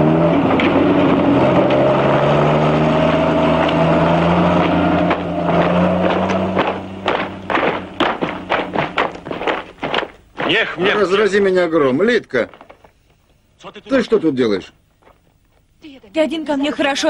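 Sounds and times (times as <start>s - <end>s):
tank engine running: 0.0s - 11.2s
short knocks: 5.1s - 10.9s.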